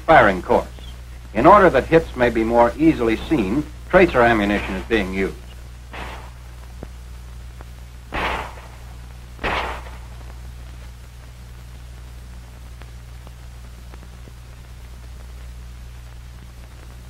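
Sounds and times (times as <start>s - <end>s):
low hum and hiss: 0.0s - 17.0s
pistol shots: 5.9s - 6.5s, 8.1s - 10.3s.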